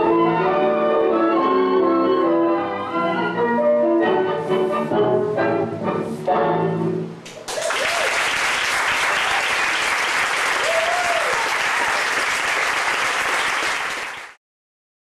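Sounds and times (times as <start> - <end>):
audience applauding: 7.3 - 14.4
person cheering: 7.5 - 8.2, 10.6 - 12.0.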